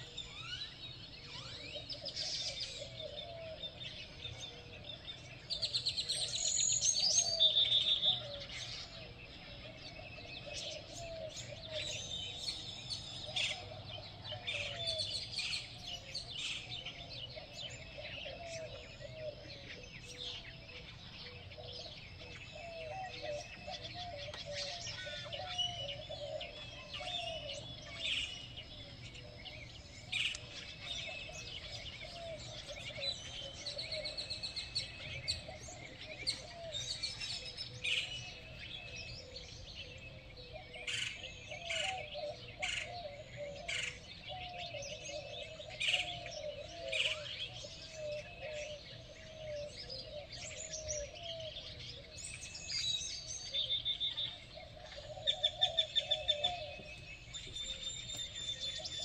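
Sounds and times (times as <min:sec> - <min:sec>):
songbirds chirping and trilling: 0:00.0 - 0:59.0
low wavering bird call: 0:21.3 - 0:59.0.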